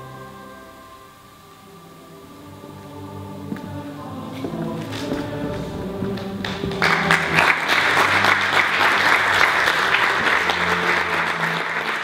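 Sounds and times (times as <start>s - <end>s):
quiet closing music: 1.5s - 8.4s
audience applause: 6.1s - 12.0s.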